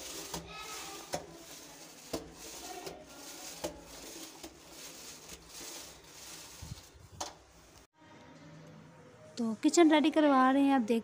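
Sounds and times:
paint roller swishing: 0.0 - 7.8.

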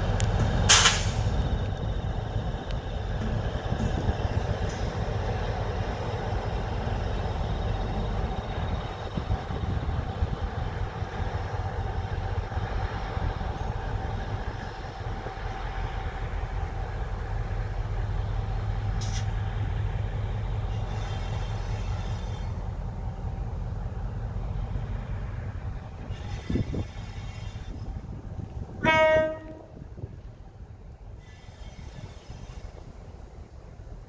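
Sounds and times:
wind buffeting microphone: 0.0 - 18.8, 25.2 - 31.2
diesel locomotive rumbling: 0.0 - 34.0
locomotive whine: 0.0 - 34.0.

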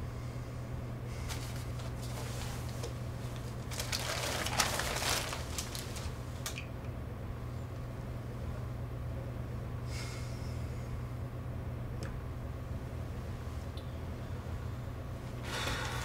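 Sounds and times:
steady low hum: 0.0 - 16.0
paper crinkling and rustling: 1.3 - 6.6.

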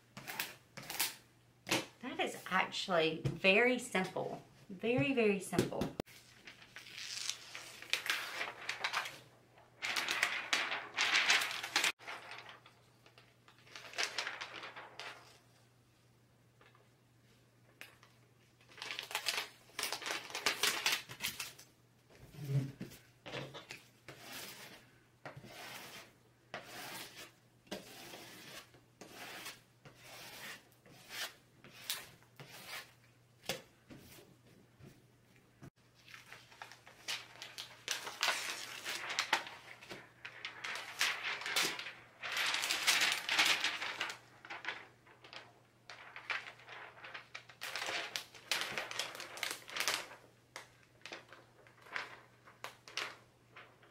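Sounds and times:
sheet crinkling: 6.0 - 15.5, 18.6 - 21.7, 35.9 - 53.9.

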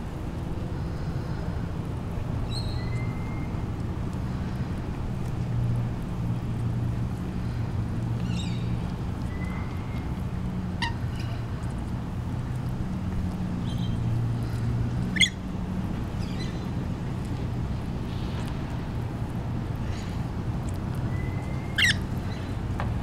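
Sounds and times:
birds chirping and screeching: 10.7 - 11.4, 15.1 - 15.4, 21.1 - 22.6.

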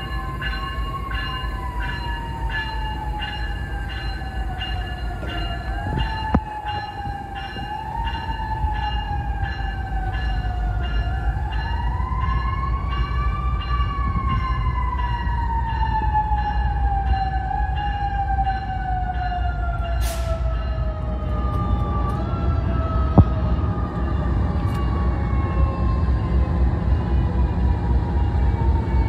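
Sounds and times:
locomotive bell ringing: 0.0 - 22.0.

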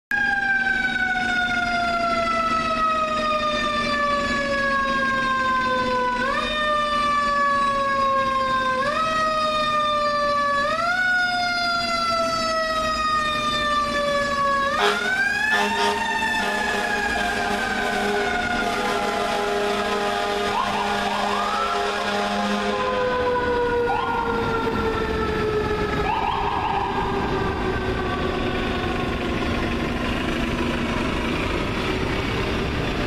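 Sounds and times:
air horn: 14.7 - 23.0.

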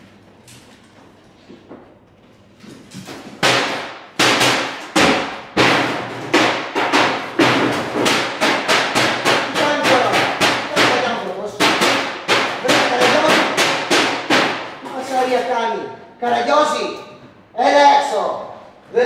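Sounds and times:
loud knocks and thumps: 3.0 - 15.0.

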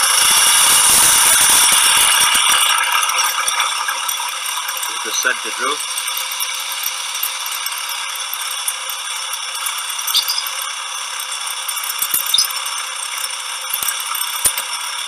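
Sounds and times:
metal lathe rattling: 0.0 - 15.0
brief squeaks: 10.1 - 10.5, 12.2 - 12.6.

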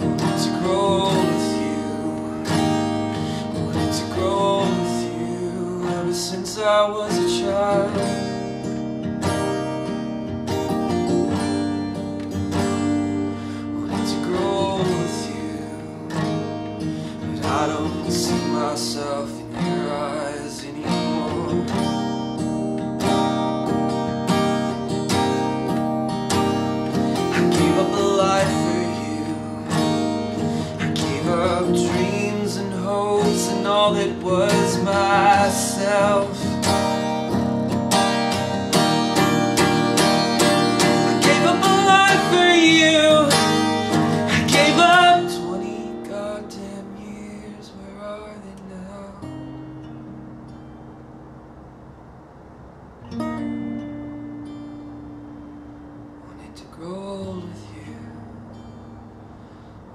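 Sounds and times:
man singing: 0.0 - 8.6, 12.6 - 22.1, 26.9 - 37.1, 38.3 - 49.5, 56.3 - 58.3
acoustic guitar: 0.0 - 59.9.

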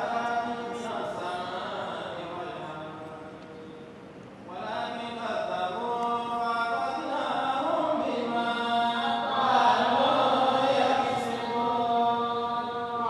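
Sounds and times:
chanted recitation: 0.0 - 13.0.

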